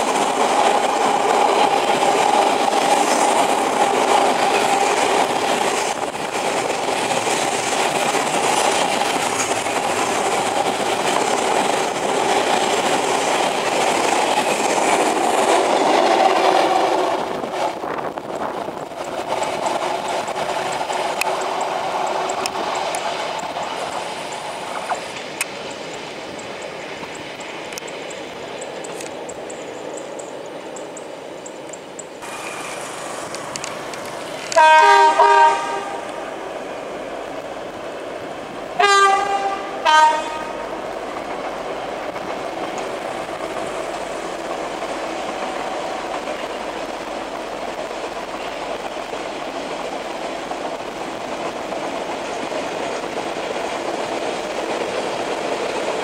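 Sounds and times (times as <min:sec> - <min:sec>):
passing train rail noise: 0:00.0 - 0:56.0
train wheel and engine noise: 0:00.0 - 0:56.0
locomotive horn blasts: 0:34.5 - 0:36.1, 0:38.8 - 0:40.6.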